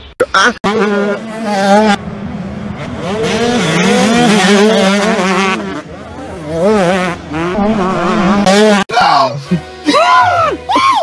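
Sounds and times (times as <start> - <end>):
motor engine revving: 0.7 - 8.9.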